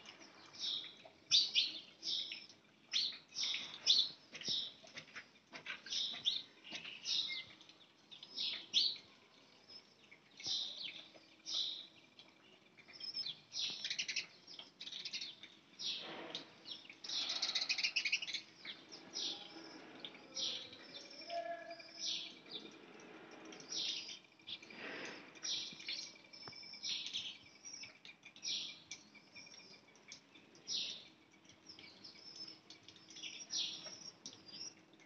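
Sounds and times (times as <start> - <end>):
swallows twittering: 9.6 - 22.8.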